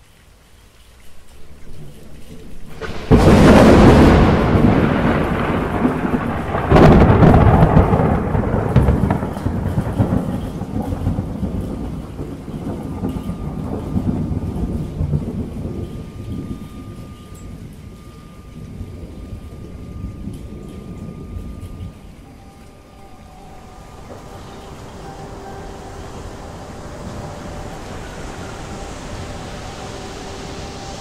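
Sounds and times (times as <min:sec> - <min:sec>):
steady rain: 0:00.0 - 0:31.0
thunder rumbling: 0:01.1 - 0:31.0.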